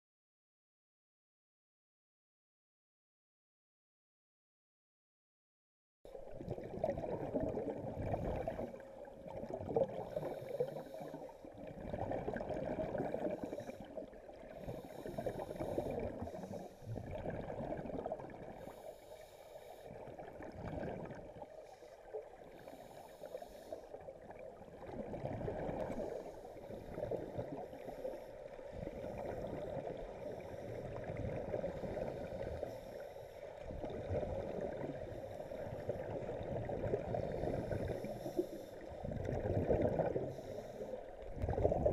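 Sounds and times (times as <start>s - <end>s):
muffled underwater rumble: 6.1s - 41.9s
bursts of exhaled bubbles: 41.3s - 41.9s.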